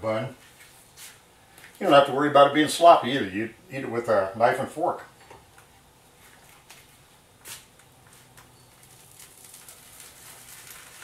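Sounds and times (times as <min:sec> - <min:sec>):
bread sizzling in a skillet: 0:08.7 - 0:11.0.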